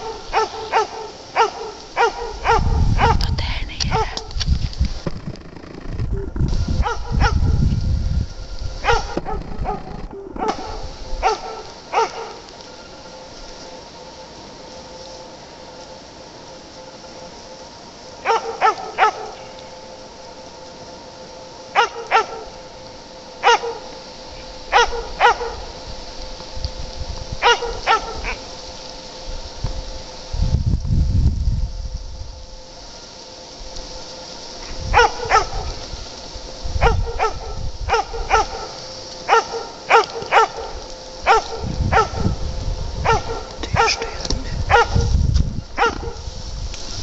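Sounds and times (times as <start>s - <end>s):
dog barking: 0.0s - 4.3s, 6.8s - 7.5s, 8.8s - 12.4s, 18.2s - 19.4s, 21.8s - 22.5s, 23.4s - 23.8s, 24.7s - 25.6s, 27.4s - 28.4s, 34.9s - 35.7s, 36.8s - 40.7s, 41.3s - 42.3s, 43.0s - 45.1s, 45.8s - 46.2s
faint steady hum: 0.0s - 47.0s
low rumble: 2.4s - 11.2s.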